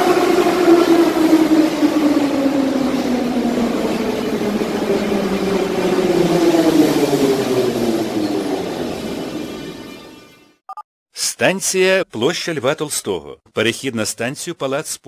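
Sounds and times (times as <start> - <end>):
wheels on rail: 0.0 - 10.3.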